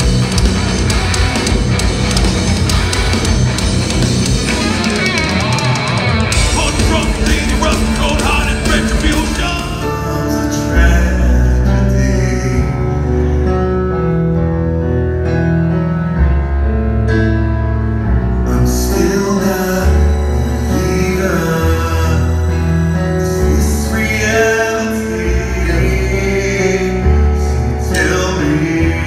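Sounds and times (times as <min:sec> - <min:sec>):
metal band playing: 0:00.0 - 0:13.1, 0:18.1 - 0:29.0
man singing: 0:06.4 - 0:13.2, 0:18.4 - 0:29.0.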